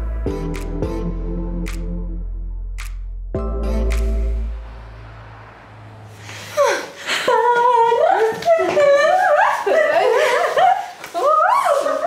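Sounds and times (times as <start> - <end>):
girls humming and singing: 6.8 - 10.1.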